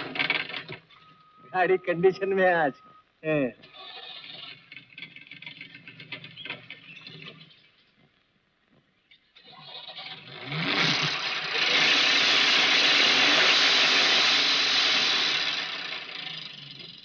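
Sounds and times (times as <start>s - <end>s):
van engine starting and revving: 0.0s - 1.8s, 9.4s - 17.0s.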